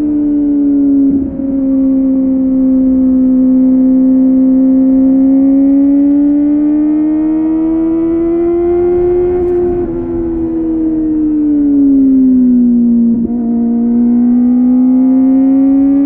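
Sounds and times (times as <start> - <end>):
motorcycle engine revving: 0.0 - 16.0.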